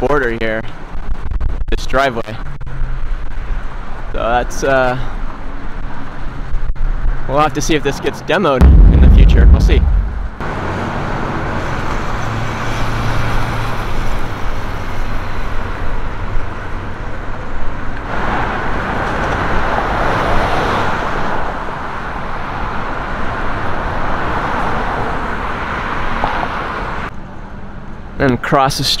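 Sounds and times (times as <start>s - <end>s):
road traffic: 5.0s - 7.3s, 10.4s - 28.2s.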